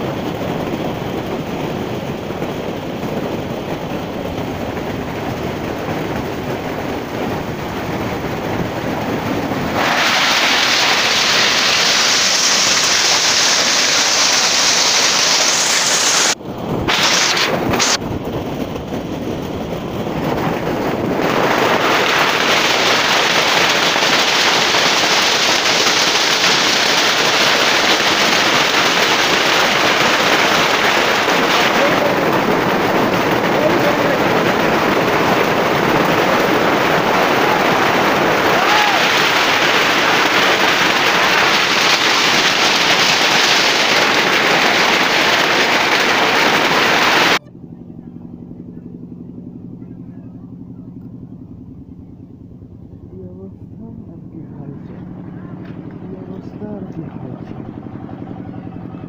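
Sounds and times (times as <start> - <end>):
hail pelting metal sheeting: 9.8 - 17.9, 21.5 - 47.4.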